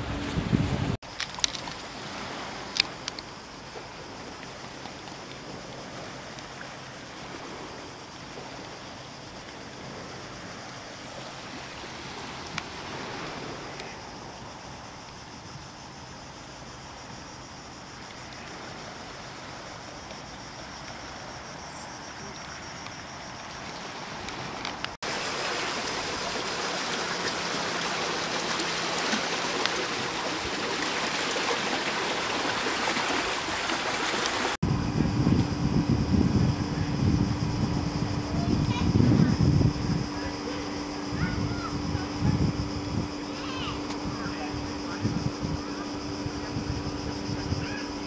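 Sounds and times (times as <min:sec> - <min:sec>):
flowing water rushing: 0:00.0 - 0:15.2, 0:17.6 - 0:34.7.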